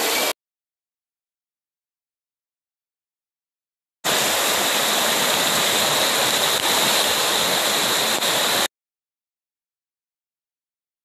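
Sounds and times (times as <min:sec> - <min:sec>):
drain pipes spouting water: 0:04.1 - 0:08.7
floodwater rushing: 0:04.1 - 0:08.7
heavy rain: 0:04.1 - 0:08.7.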